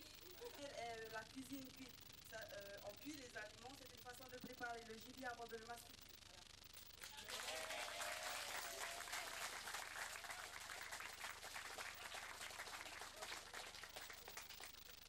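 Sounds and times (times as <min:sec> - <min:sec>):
audience applauding: 0:07.0 - 0:15.0.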